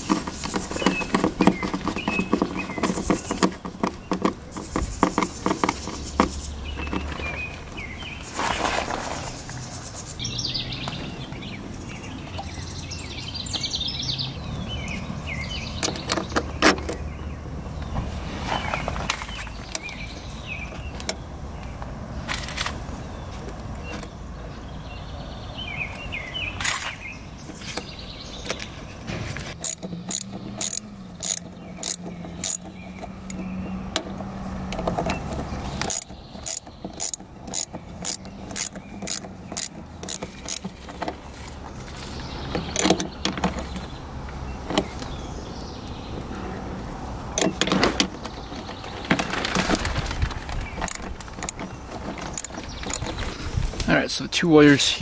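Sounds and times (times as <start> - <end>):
hand ratchet clicking: 29.6 - 33.4, 34.8 - 40.7.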